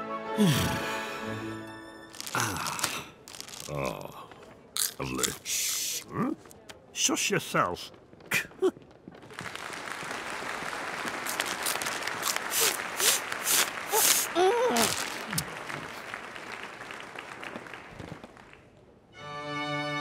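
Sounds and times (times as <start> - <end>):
person speaking: 2.2 - 8.7
audience applauding: 9.2 - 18.8.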